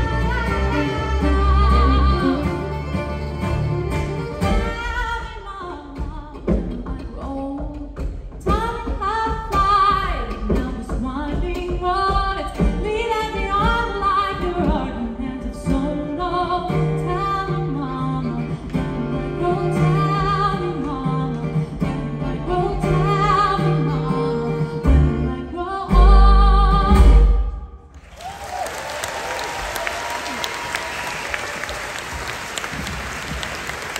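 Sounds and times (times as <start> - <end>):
acoustic band with woman singing: 0.0 - 27.8
audience applause: 27.9 - 33.9.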